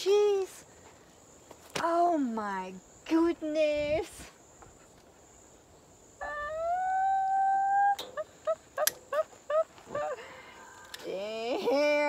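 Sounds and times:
high-pitched laughter: 0:06.2 - 0:10.3.

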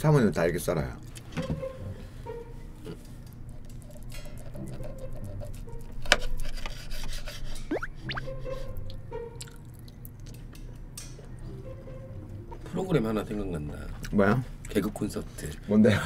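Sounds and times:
short rising squeaks: 0:07.7 - 0:08.3.

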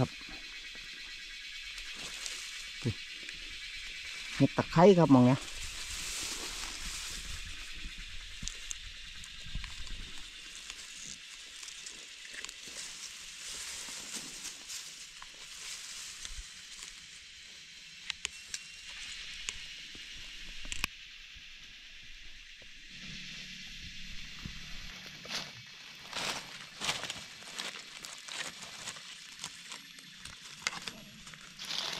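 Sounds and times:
rustling of grass and leaves: 0:00.0 - 0:20.9, 0:21.9 - 0:31.9
steady high hiss: 0:00.0 - 0:31.9
sharp clicks: 0:18.0 - 0:18.7.

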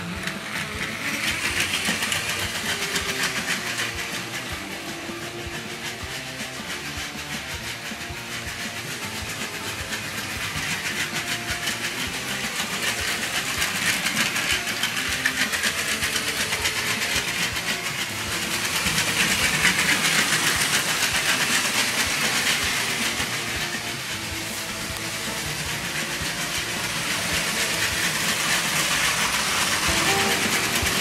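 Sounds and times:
electric motors humming: 0:00.0 - 0:07.3
toy train wheels clicking on track: 0:00.0 - 0:31.0.

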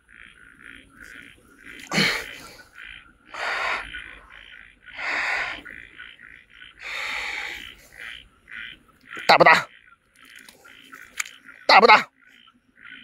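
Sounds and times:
short chirping animal calls: 0:01.0 - 0:09.9.

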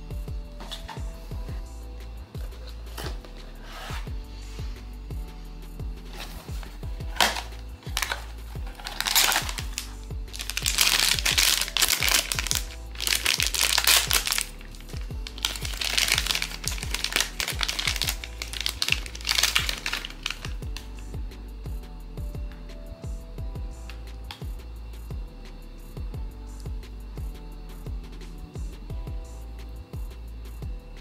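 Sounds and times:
background music: 0:00.0 - 0:31.0
foil bag crinkling: 0:06.1 - 0:20.6.

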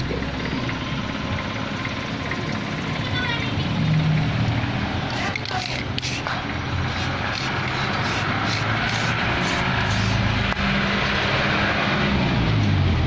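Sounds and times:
spray can hissing: 0:05.1 - 0:10.3.

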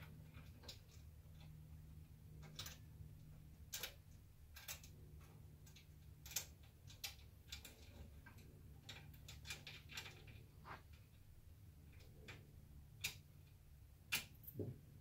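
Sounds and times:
low steady hum: 0:00.0 - 0:15.0
metal clicks and ticks: 0:03.6 - 0:10.4, 0:11.8 - 0:14.6.

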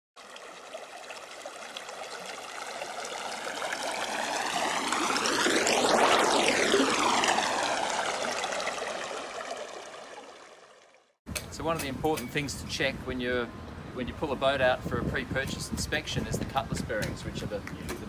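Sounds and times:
rushing water whoosh: 0:00.2 - 0:11.0.

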